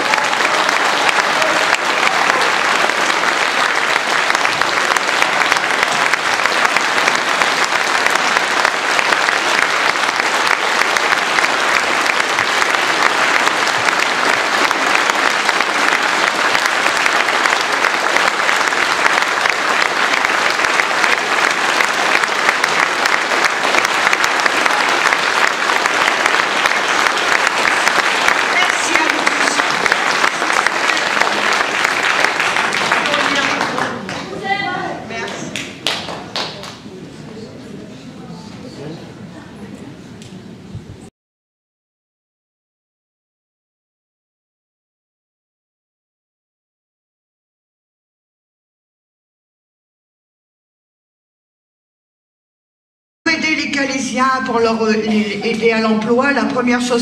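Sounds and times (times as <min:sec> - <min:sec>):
audience applause: 0:00.0 - 0:36.9.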